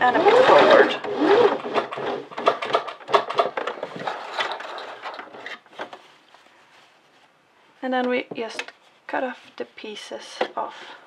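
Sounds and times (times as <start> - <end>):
sewing machine motor whirring: 0.0 - 3.5.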